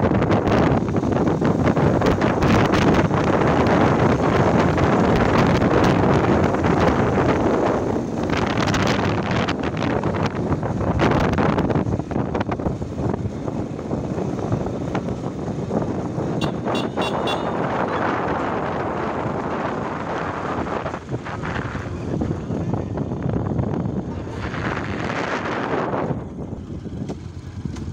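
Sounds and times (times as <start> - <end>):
road and vehicle noise: 0.0 - 27.9
wind rushing over microphone: 0.0 - 27.9
short high-pitched horn beeps: 16.4 - 17.7.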